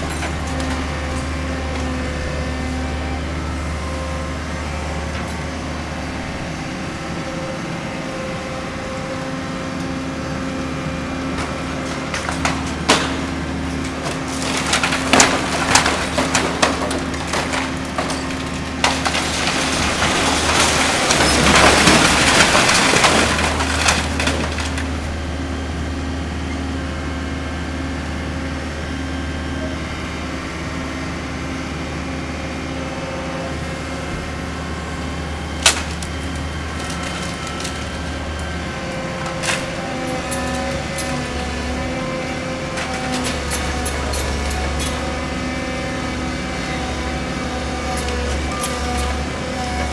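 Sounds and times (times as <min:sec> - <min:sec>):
excavator engine running: 0:00.0 - 0:49.9
falling debris crash: 0:11.8 - 0:25.2, 0:35.6 - 0:41.8
splintering wood cracks: 0:12.1 - 0:25.0, 0:35.6 - 0:38.5.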